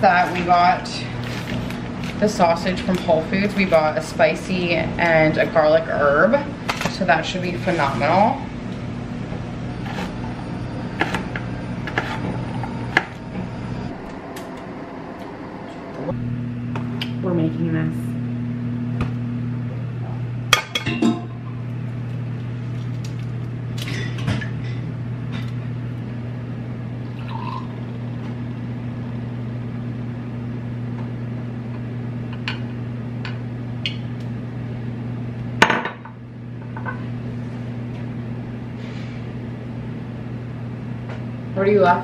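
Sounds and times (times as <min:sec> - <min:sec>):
steady low hum: 0:00.0 - 0:42.0
glass and dishes clinking: 0:20.6 - 0:21.4
liquid pouring into bowl: 0:27.1 - 0:28.0.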